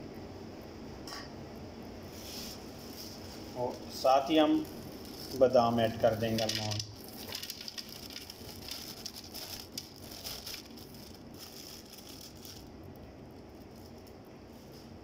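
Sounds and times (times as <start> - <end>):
almonds rattling into blender: 4.6 - 12.7.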